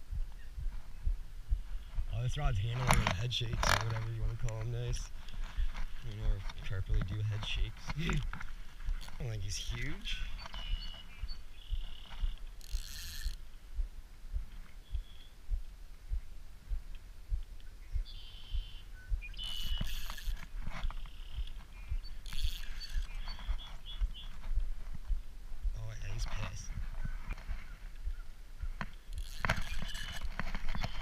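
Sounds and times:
fishing reel ratcheting and whirring: 8.9 - 10.6, 11.9 - 13.4, 19.4 - 21.4, 22.1 - 23.6, 29.0 - 31.0.

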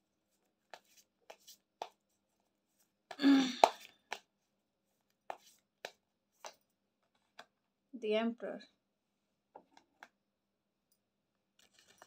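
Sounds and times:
cards being shuffled: 11.6 - 12.0.

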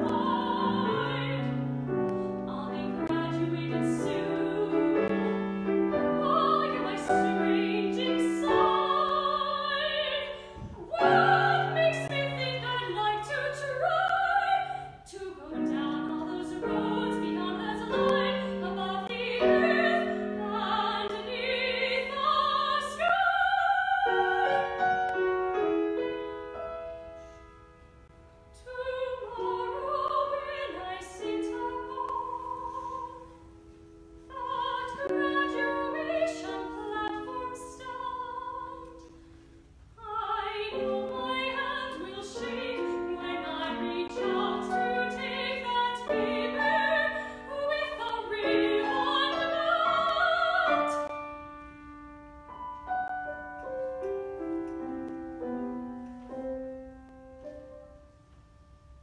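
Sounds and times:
woman singing opera: 0.0 - 24.9, 28.6 - 33.4, 34.2 - 39.2, 40.0 - 51.2
grand piano accompaniment: 0.0 - 59.0.

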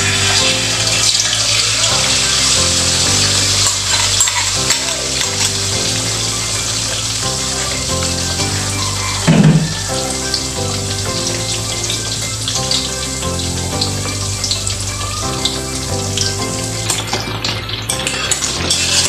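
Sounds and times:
spatula scraping a wok: 0.0 - 5.4
background music: 0.0 - 19.0
egg sizzling in hot oil: 0.0 - 19.0.

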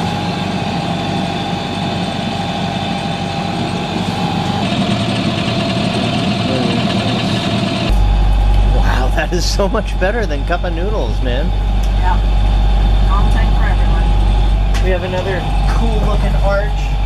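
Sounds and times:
boat engine running: 0.0 - 17.0
steady whine: 0.0 - 17.0.

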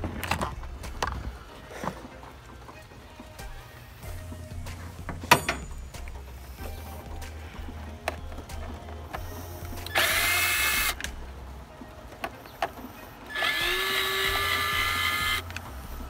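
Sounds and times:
cordless drill motor whining: 9.2 - 11.0, 13.3 - 16.0.

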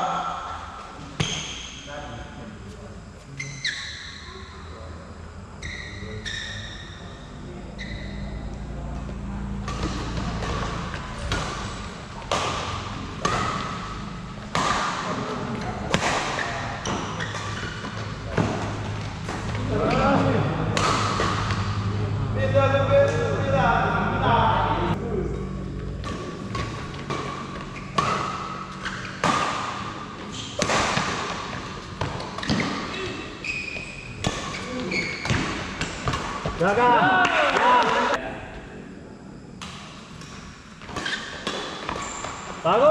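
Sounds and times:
rackets striking shuttlecock: 9.0 - 21.9, 25.5 - 32.9.

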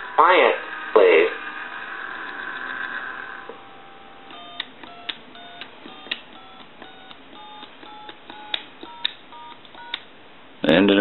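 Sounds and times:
touch-tone dial beeps: 3.6 - 10.0
phone button clicks: 4.3 - 10.1.

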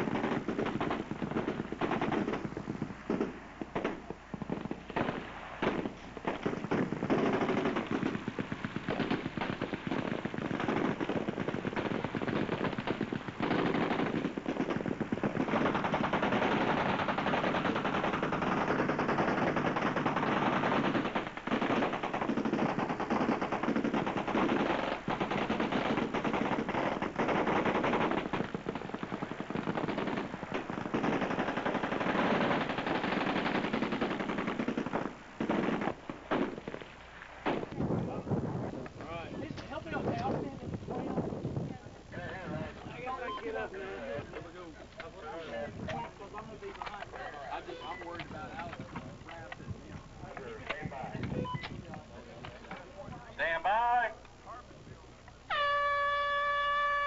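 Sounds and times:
machine guns firing bursts: 0.0 - 36.8.

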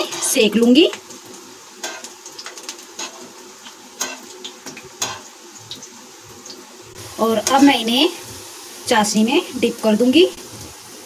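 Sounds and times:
frying in hot oil: 0.0 - 11.0
metal utensil clicking on pan: 4.0 - 4.3, 5.0 - 5.2.

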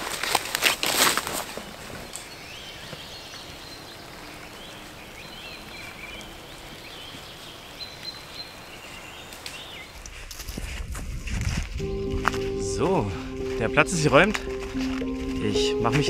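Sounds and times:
small songbirds chirping: 2.0 - 10.3.

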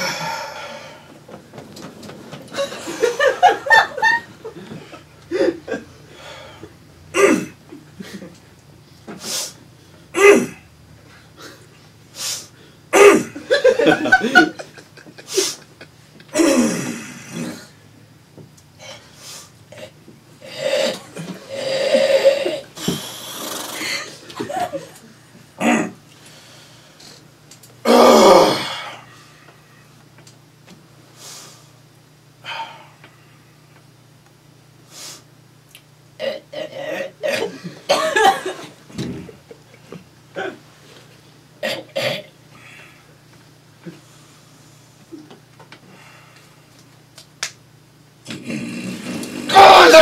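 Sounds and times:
man hawking throat-clearing: 0.0 - 0.9, 7.1 - 7.6, 10.1 - 10.7, 12.9 - 13.6, 16.3 - 17.8, 19.7 - 24.1, 25.6 - 26.0, 27.8 - 29.1, 36.2 - 38.2, 41.6 - 42.3
man snorting: 0.0 - 1.1, 5.3 - 8.3, 9.2 - 13.6, 15.2 - 17.8, 18.8 - 24.7, 25.6 - 26.0, 36.2 - 37.8, 38.9 - 39.4, 48.3 - 49.9
man snorting through nose: 7.1 - 7.6, 9.2 - 10.7, 16.3 - 17.8, 18.8 - 24.1, 48.2 - 49.5
harsh sniff: 9.2 - 9.6, 12.1 - 12.7, 15.3 - 15.7, 19.0 - 19.6, 34.9 - 35.3.

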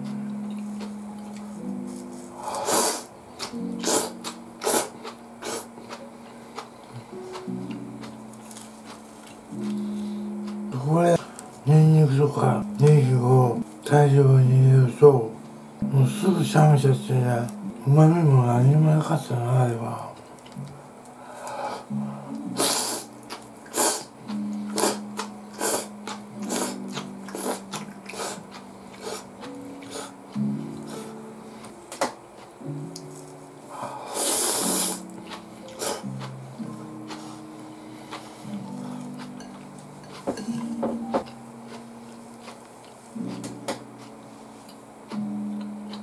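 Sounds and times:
quiet background music: 0.0 - 46.0
noodles slurped: 2.6 - 5.7.

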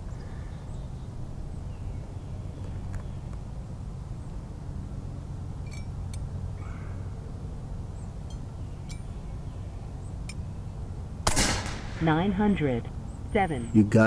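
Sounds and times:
faint bird chirps: 0.0 - 3.4, 5.6 - 11.0.

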